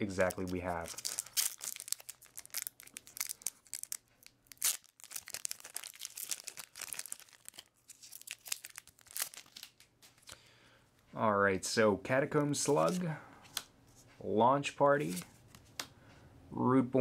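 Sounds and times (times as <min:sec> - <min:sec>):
foil wrapper crinkling and tearing: 0:00.1 - 0:09.9.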